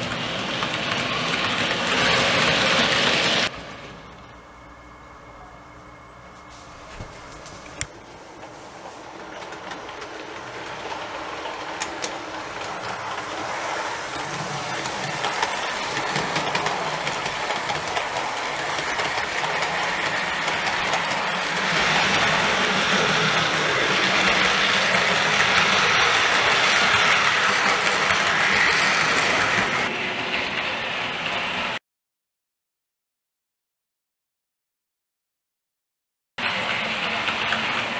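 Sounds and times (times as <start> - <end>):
model train wheels clicking: 0.0 - 3.5, 7.8 - 30.0, 36.4 - 37.9.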